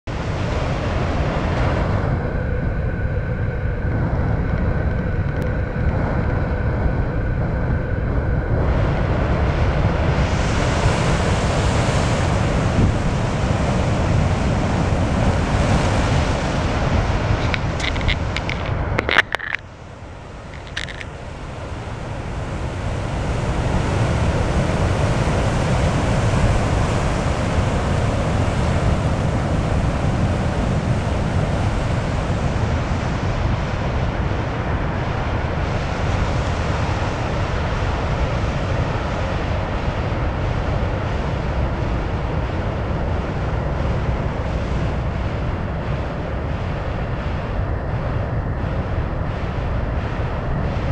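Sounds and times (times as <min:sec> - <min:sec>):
surf crashing on rocks: 0:10.6 - 0:19.6.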